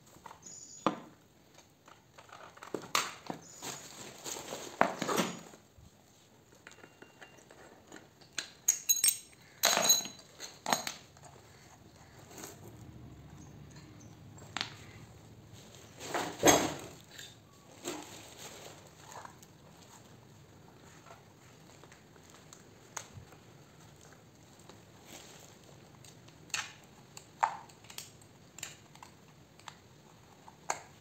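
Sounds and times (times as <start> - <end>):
metal tools clinking: 6.6 - 11.4.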